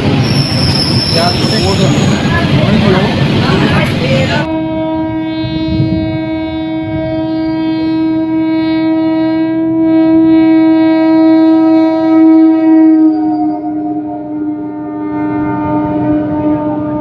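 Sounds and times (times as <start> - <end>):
train air horn blast: 4.4 - 17.0.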